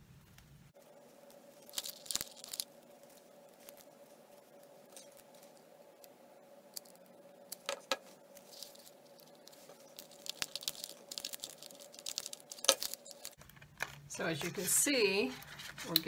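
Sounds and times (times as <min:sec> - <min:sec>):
faint steady hum: 0:00.0 - 0:16.0
plastic crinkling and clicking: 0:01.3 - 0:03.9, 0:06.7 - 0:14.6.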